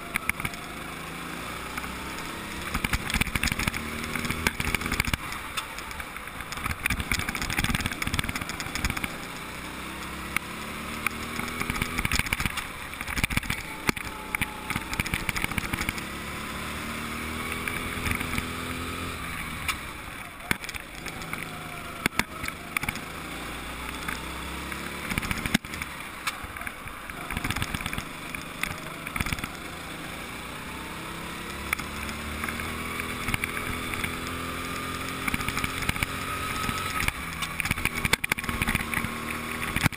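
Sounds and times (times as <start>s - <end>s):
go-kart engine accelerating: 0.0s - 39.9s.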